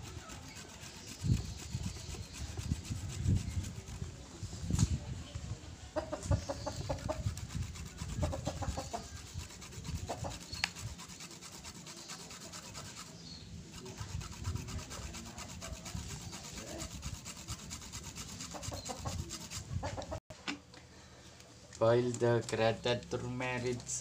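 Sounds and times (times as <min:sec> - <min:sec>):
root rasping on metal grater: 0:00.0 - 0:04.1, 0:06.7 - 0:19.6.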